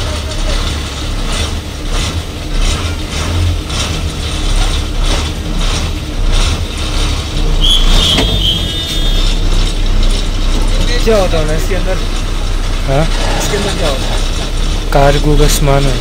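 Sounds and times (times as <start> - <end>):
bus engine rumbling: 0.0 - 16.0
short high beeps: 7.6 - 9.4.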